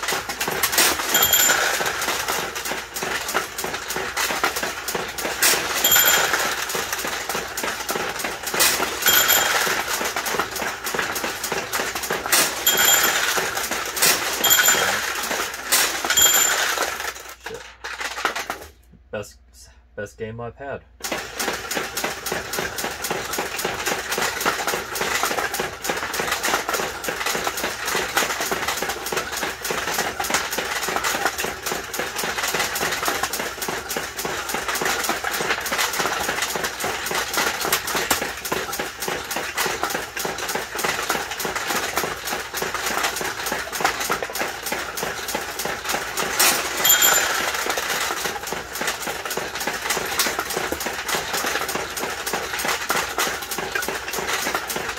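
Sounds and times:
steel balls clattering through pins: 0:00.0 - 0:18.8, 0:21.0 - 0:54.9
ball launcher firing: 0:00.7 - 0:02.4, 0:05.3 - 0:17.2
bell ringing: 0:01.0 - 0:02.1, 0:05.7 - 0:06.8, 0:09.0 - 0:10.0, 0:12.5 - 0:17.1, 0:46.6 - 0:47.7.

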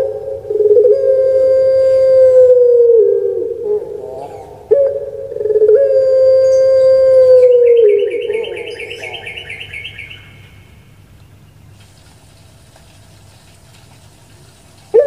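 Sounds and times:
dove cooing: 0:00.0 - 0:10.7.

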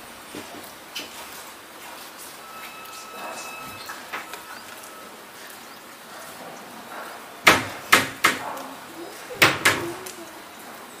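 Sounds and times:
rain falling: 0:00.0 - 0:11.0
sharp knocks: 0:07.4 - 0:08.5, 0:09.4 - 0:10.0.

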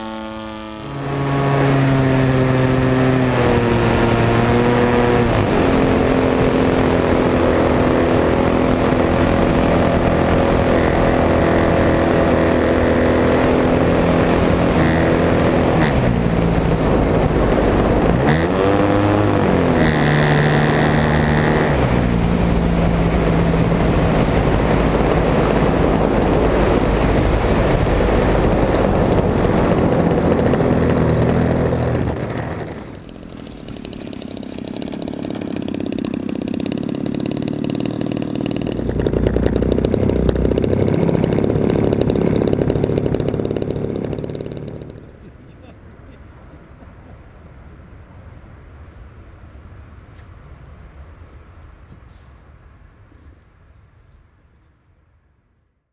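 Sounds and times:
model plane engine running: 0:00.0 - 0:45.3.

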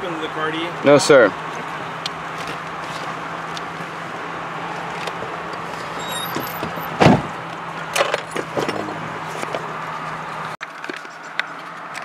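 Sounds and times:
loud thump: 0:06.6 - 0:07.3.

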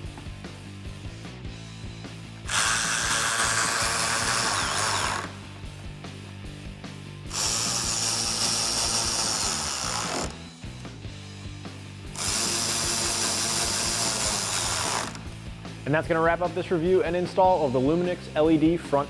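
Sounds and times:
background music: 0:00.0 - 0:19.0
power driver driving screws: 0:02.5 - 0:05.4, 0:07.3 - 0:10.4, 0:12.2 - 0:15.3.

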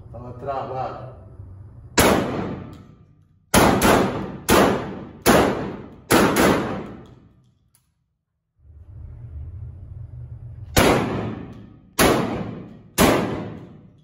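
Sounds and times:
shotgun shots echoing indoors: 0:02.0 - 0:08.0, 0:10.7 - 0:14.0.

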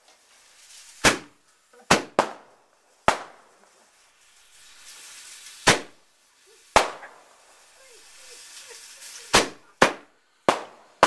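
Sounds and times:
firework bangs: 0:00.0 - 0:11.0
fireworks hissing sparks: 0:00.0 - 0:11.0.

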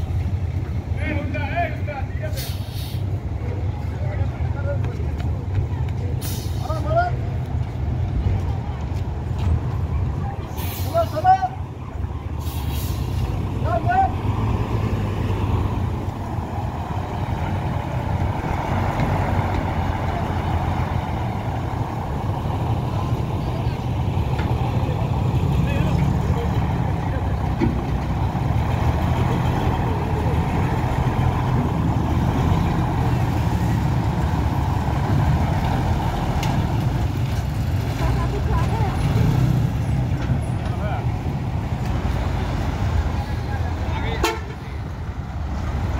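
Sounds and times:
bus diesel engine passing: 0:00.0 - 0:45.9.

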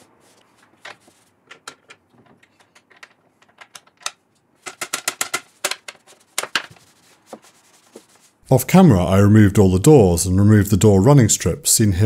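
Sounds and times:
sponge scrubbing wooden floor: 0:05.5 - 0:08.4.

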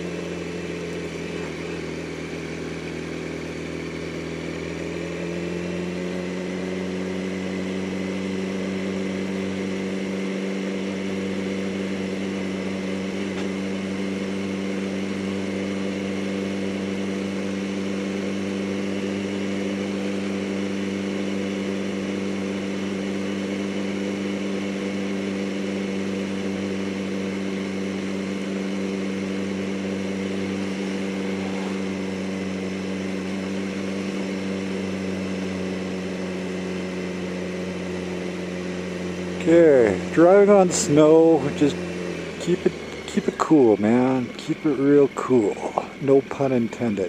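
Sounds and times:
motorcycle engine cruising: 0:00.0 - 0:47.0
wind and road noise: 0:28.8 - 0:35.7.

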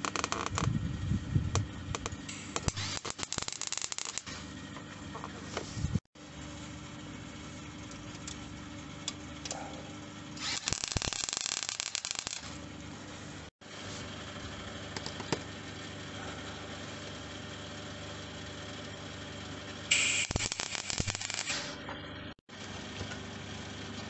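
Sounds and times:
welder arc crackling: 0:00.0 - 0:00.7, 0:01.5 - 0:04.5, 0:10.4 - 0:12.6, 0:19.9 - 0:21.8
steady machine hum: 0:00.2 - 0:24.0.

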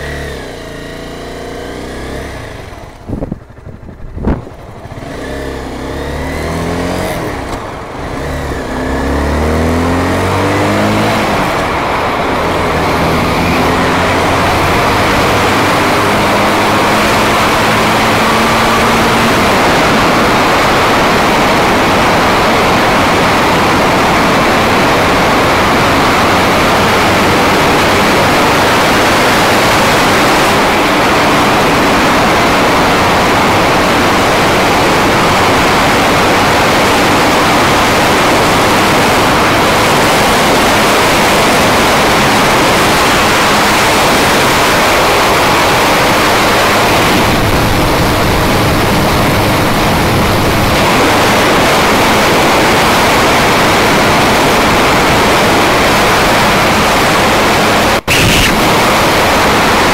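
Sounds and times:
motorcycle engine droning: 0:00.0 - 0:59.9
wind buffeting microphone: 0:02.3 - 0:05.3, 0:30.5 - 0:59.9.

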